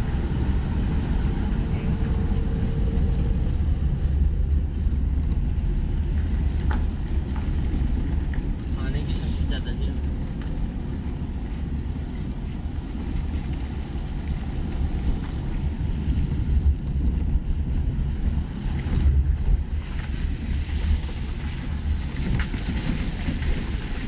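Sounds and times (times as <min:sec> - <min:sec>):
car engine rumble: 0:00.0 - 0:24.0
tyres on wet road: 0:00.0 - 0:24.0.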